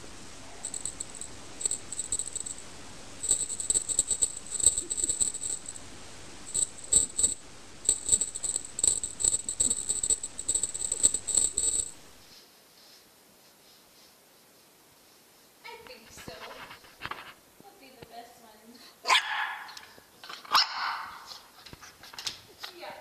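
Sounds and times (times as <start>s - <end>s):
cat toy jingling: 0.5s - 5.8s, 6.5s - 12.2s.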